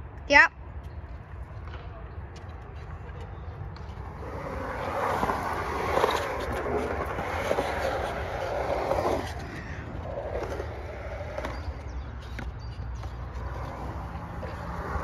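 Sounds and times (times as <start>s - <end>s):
skateboard wheels rolling on concrete: 0.1s - 15.0s.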